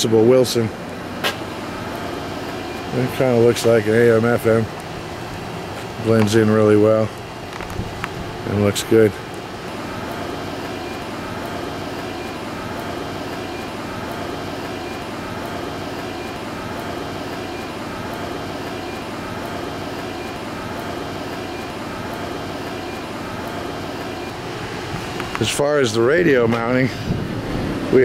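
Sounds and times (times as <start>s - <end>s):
mechanical drone with warble: 9.6s - 28.0s.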